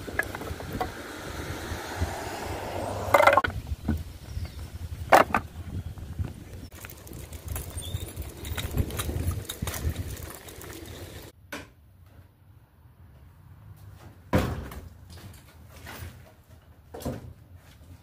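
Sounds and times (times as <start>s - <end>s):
wagon wheels rumbling on asphalt: 0.0s - 11.4s
wood knocking in wagon: 5.1s - 5.5s.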